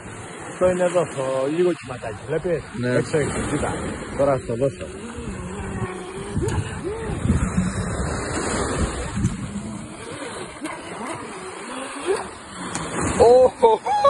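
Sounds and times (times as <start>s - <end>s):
small waves breaking: 0.0s - 14.0s
electric boat motor: 3.3s - 13.6s.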